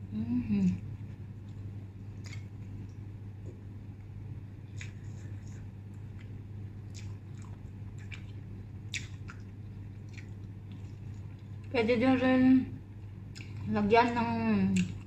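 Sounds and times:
steady low hum: 0.0 - 15.0
person chewing noodles: 0.7 - 3.1, 4.6 - 11.7, 13.0 - 13.7, 14.8 - 15.0.

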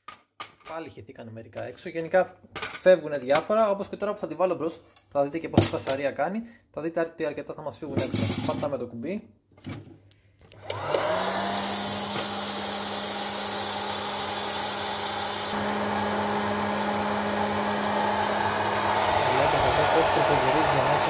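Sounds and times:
popcorn maker fan motor humming: 10.6 - 21.0
hot air hissing: 11.3 - 15.6, 18.4 - 21.0.

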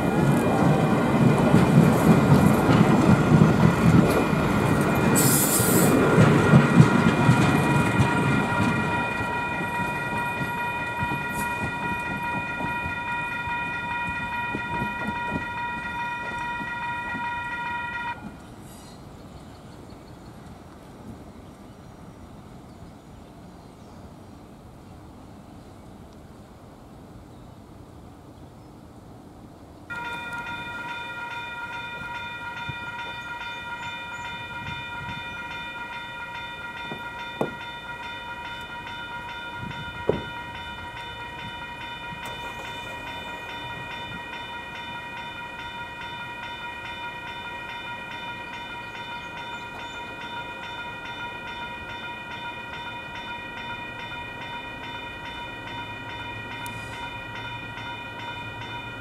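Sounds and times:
crossing warning bell ringing: 1.2 - 18.4, 29.9 - 59.0.

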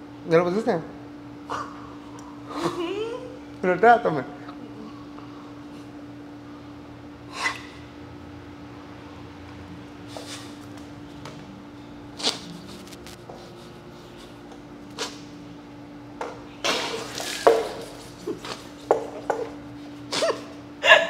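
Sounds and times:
steady hum: 0.0 - 21.0.

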